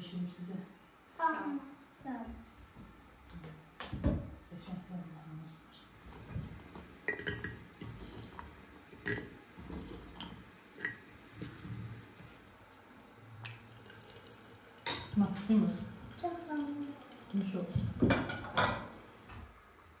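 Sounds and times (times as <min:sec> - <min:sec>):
berries clinking into glass teapot: 0:07.1 - 0:07.7, 0:09.0 - 0:09.4, 0:10.8 - 0:11.6.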